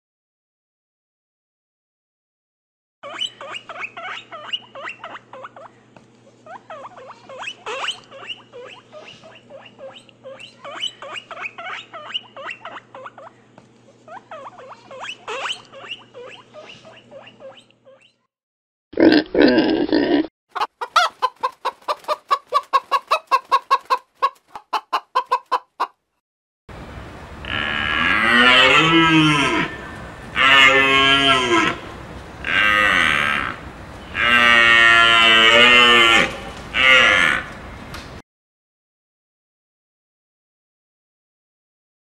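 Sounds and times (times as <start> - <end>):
chatter of short animal calls: 3.0 - 18.3
loud harsh animal call: 27.4 - 37.5.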